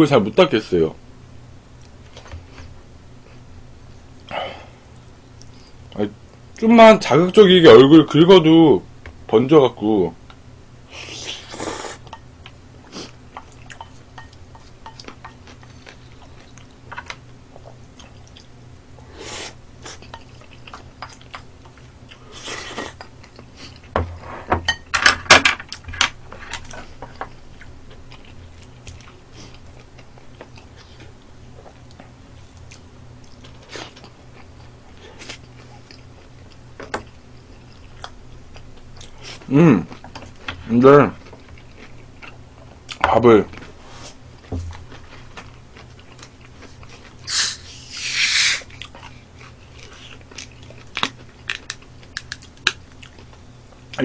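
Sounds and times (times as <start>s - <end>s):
close chewing: 19.8s - 23.9s, 44.4s - 54.0s.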